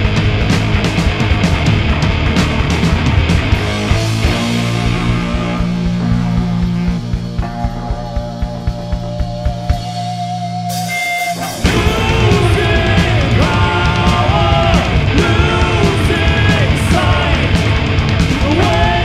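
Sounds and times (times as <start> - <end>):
live rock band playing: 0.0 - 19.0
held bass note: 1.6 - 15.9
sung vocals: 4.2 - 7.1, 10.8 - 19.0
kick drum beats: 5.0 - 10.2.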